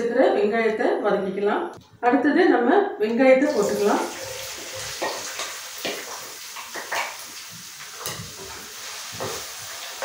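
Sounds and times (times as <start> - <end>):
oil sizzling: 3.5 - 10.0
spatula knocking and scraping: 8.0 - 9.7.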